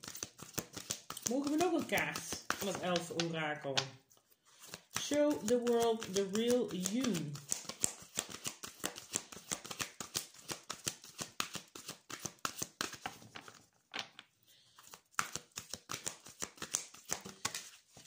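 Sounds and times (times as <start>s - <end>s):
cards being shuffled by hand: 0.0s - 18.0s.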